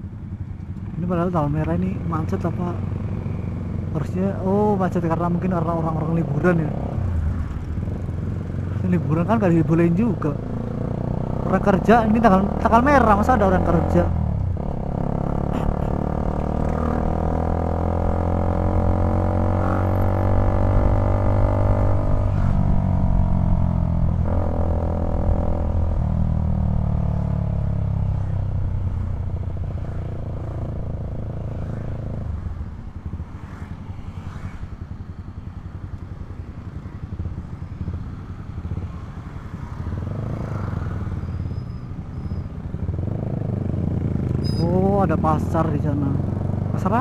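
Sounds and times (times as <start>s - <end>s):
motorcycle engine running: 10.2s - 33.6s.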